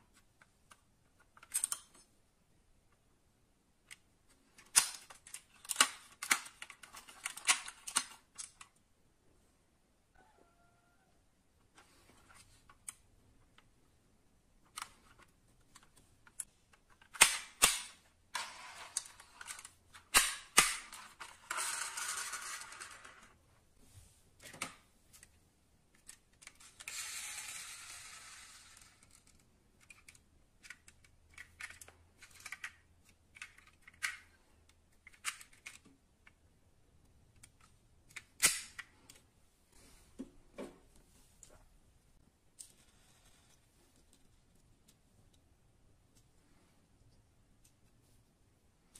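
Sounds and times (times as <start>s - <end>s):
metal model cars clicking: 0.7s - 2.0s, 4.6s - 8.7s, 25.9s - 34.4s.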